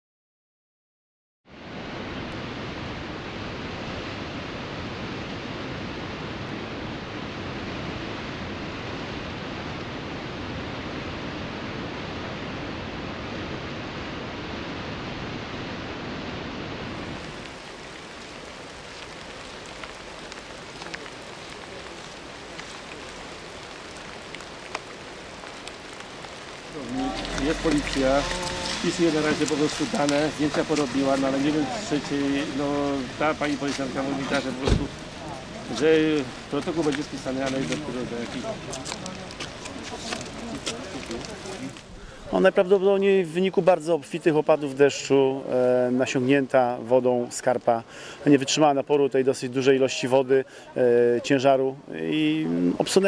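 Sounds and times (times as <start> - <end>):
quiet steady hiss: 1.8 - 53.0
waterfall rushing: 16.8 - 43.2.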